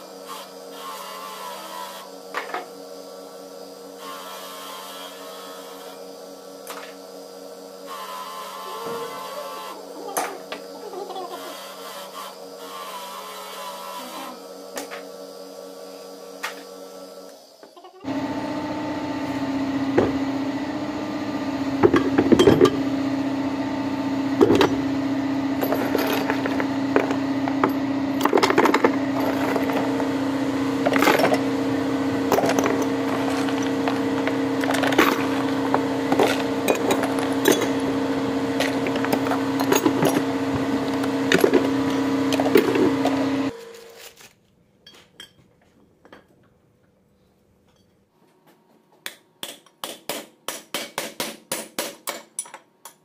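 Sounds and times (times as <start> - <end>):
machine humming: 18.0 - 44.0
metal parts clinking: 25.6 - 30.0, 32.3 - 37.9.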